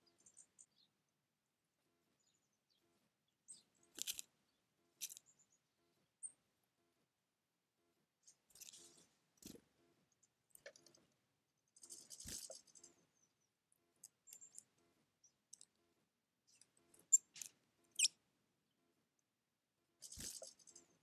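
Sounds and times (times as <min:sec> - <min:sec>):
birds ticking and rustling on pebbles: 0:03.5 - 0:05.6, 0:08.2 - 0:15.8, 0:16.5 - 0:18.1, 0:20.0 - 0:21.0.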